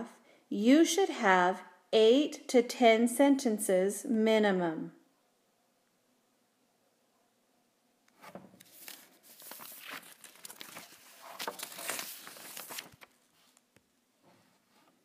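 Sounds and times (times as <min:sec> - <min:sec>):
rustling crinkling handling noise: 0:08.2 - 0:13.8.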